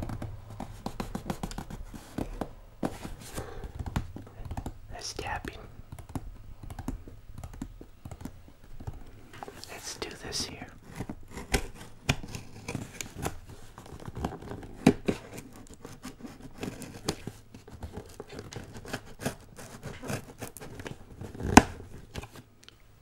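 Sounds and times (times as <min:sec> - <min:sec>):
fingernails scratching on cardboard: 0:00.0 - 0:04.2, 0:09.6 - 0:22.0
fingers tapping on cardboard box: 0:00.0 - 0:04.8.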